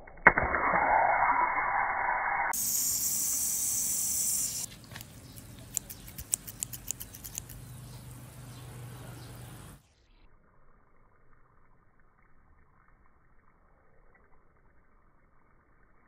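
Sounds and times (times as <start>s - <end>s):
water spraying hiss: 2.5s - 4.7s
scissors blades clicking: 4.4s - 7.6s.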